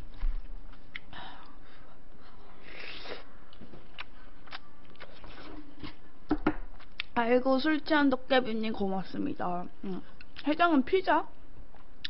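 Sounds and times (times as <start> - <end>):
chewing and mouth noises: 3.6 - 6.0.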